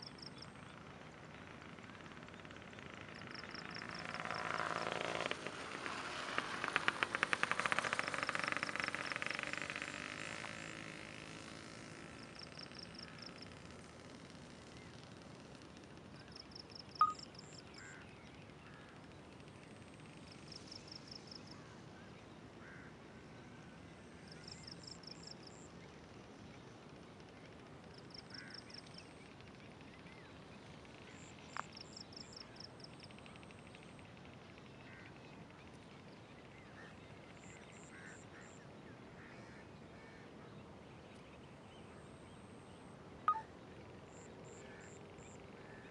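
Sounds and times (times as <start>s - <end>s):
high-pitched pulsing call: 17.0s - 17.3s, 43.3s - 43.5s.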